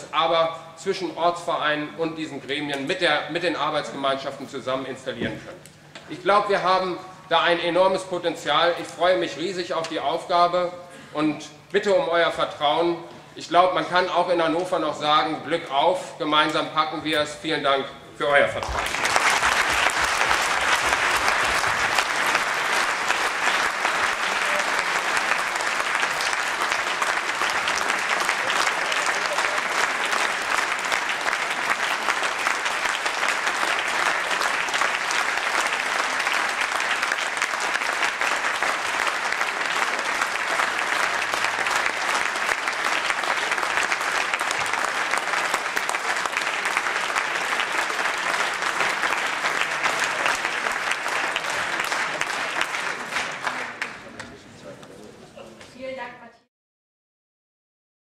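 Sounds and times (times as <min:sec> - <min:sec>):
audience applauding: 0:18.6 - 0:54.4.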